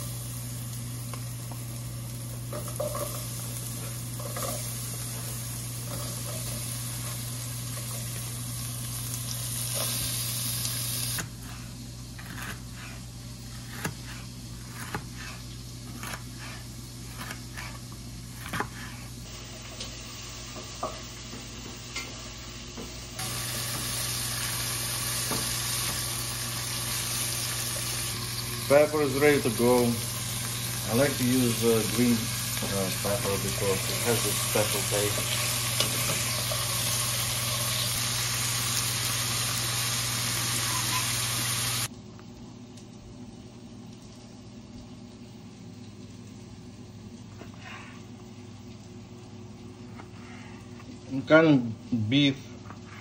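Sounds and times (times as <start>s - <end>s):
onions sizzling in oil: 0.0s - 41.9s.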